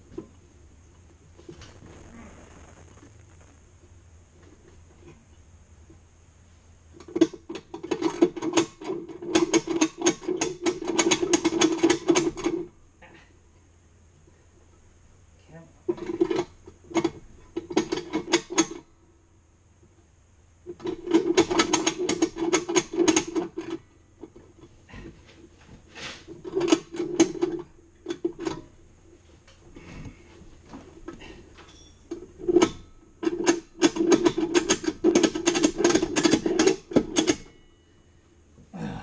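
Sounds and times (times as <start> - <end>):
metallic clicking and rattling: 7.0 - 12.7, 26.4 - 28.7, 31.6 - 37.6.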